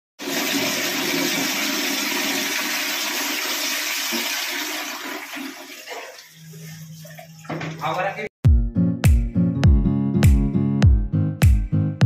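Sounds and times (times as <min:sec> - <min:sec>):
toilet flush water rushing: 0:00.2 - 0:08.0.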